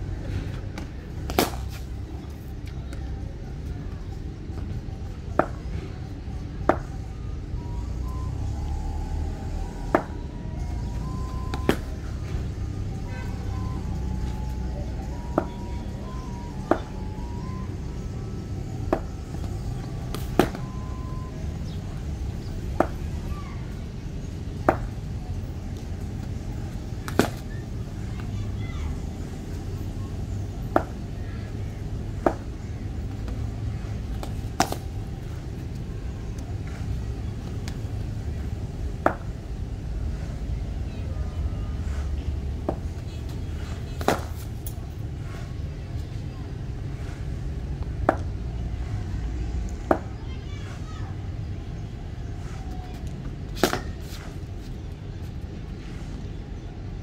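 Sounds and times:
cricket bat hitting ball: 1.3 - 1.7, 27.0 - 27.4, 30.7 - 31.0, 34.2 - 34.8, 44.0 - 44.4.

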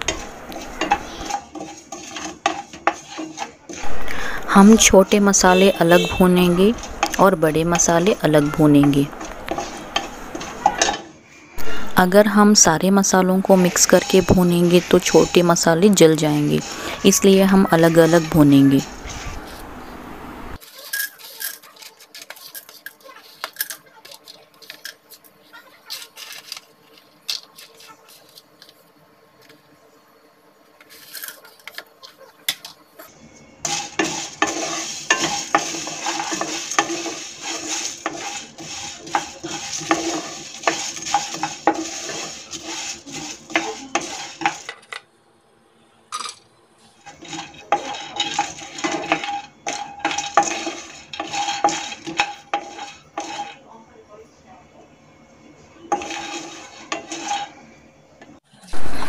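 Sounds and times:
spatula stirring spices in pan: 0.0 - 19.7, 20.6 - 29.7, 30.6 - 44.8, 46.8 - 53.8, 55.8 - 57.6.

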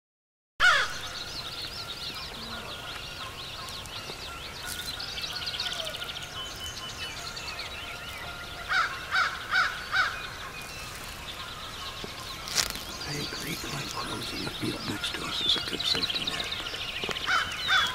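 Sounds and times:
crow cawing: 0.6 - 1.0, 8.7 - 10.2, 13.6 - 17.9
high bird chirps and trills: 0.6 - 17.9.

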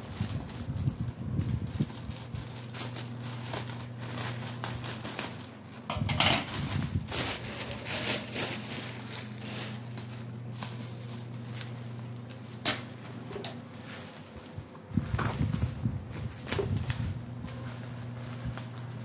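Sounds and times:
plastic pouch rustling: 0.0 - 19.0
steady low hum: 0.0 - 19.0.

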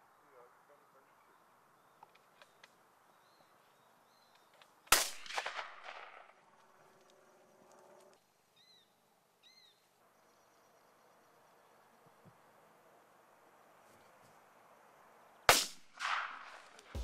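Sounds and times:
shotgun shot echoing: 4.9 - 6.4, 15.5 - 17.0.

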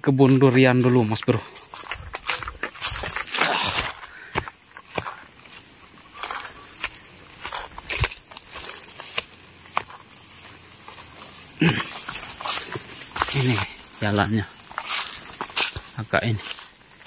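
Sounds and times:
footsteps on dirt path: 0.0 - 17.0
insects buzzing: 0.0 - 17.0.

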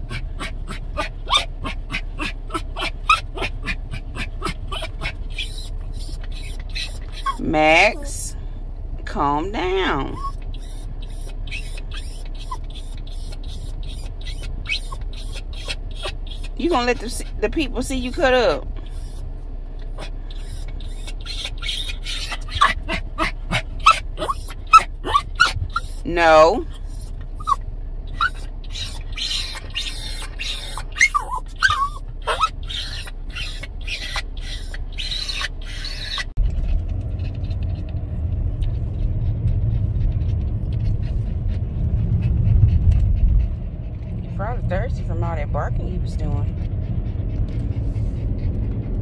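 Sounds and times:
dog panting fast: 0.0 - 8.2, 9.6 - 19.2, 19.9 - 36.4, 38.6 - 49.0
dog whimpering: 0.0 - 8.3, 9.6 - 19.2, 19.9 - 36.4.

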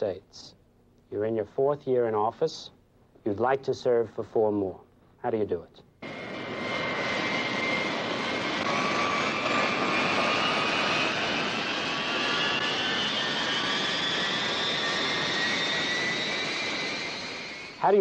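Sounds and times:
jet engines whining: 6.0 - 18.0.

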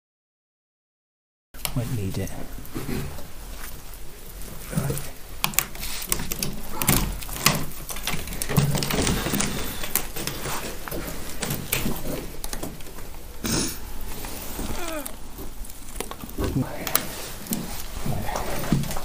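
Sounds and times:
footsteps on broken floorboards: 2.4 - 13.3, 13.9 - 19.0
loose boards knocking and scraping: 4.8 - 13.2.

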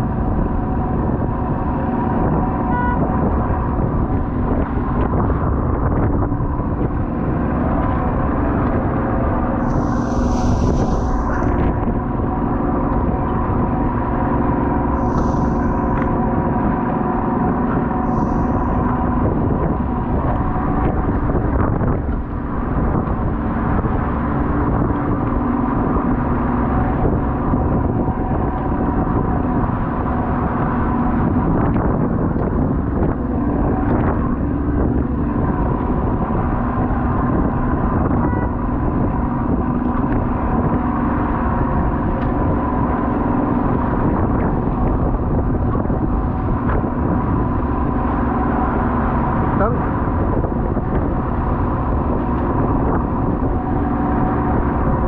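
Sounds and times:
boat engine humming: 0.0 - 55.0
rushing noise: 0.0 - 55.0.

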